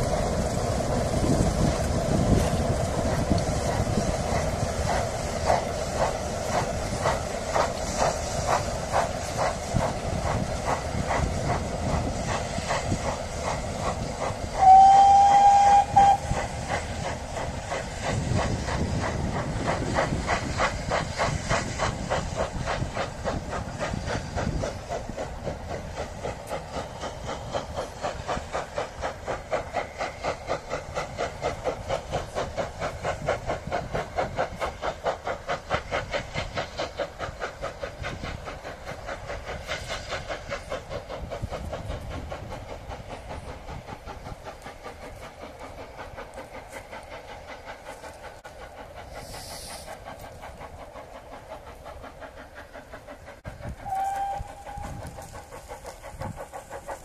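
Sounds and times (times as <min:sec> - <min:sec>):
steam locomotive chuffing: 0:00.0 - 0:57.0
train whistle: 0:14.6 - 0:16.6, 0:53.8 - 0:55.2.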